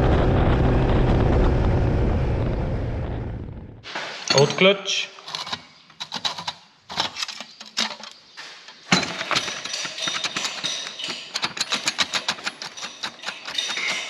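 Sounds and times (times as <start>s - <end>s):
metal-on-metal rattle: 4.2s - 14.0s
loose metallic clinks: 4.3s - 14.0s.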